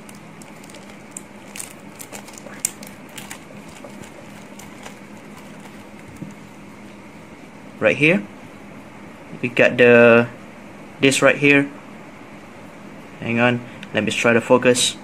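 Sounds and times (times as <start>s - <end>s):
plastic bag crinkling: 0.0s - 6.6s
steady low hum: 0.0s - 15.0s.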